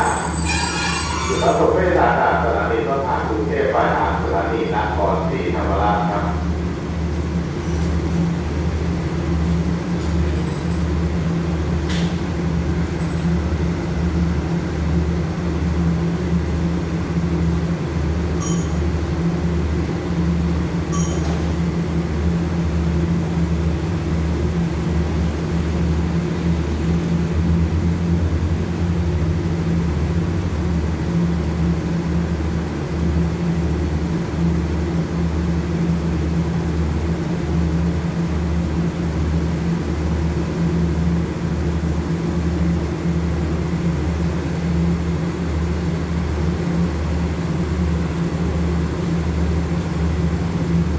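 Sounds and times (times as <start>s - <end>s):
diesel engines idling: 0.0s - 31.7s.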